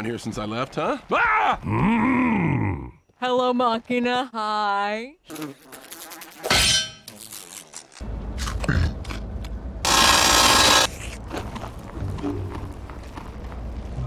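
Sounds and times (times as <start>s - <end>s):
loud noisy burst: 9.9s - 10.9s.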